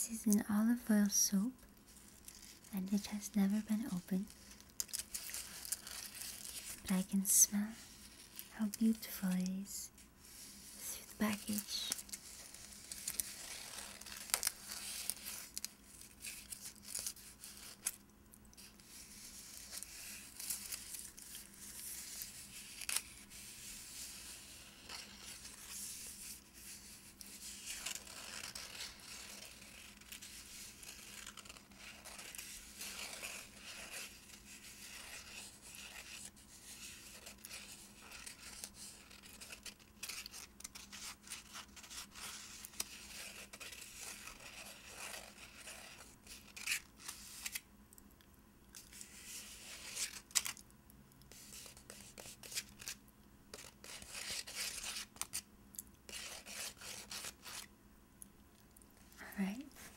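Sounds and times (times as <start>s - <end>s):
fingernails scratching paper: 26.7s - 47.6s, 51.3s - 55.4s, 56.1s - 57.7s.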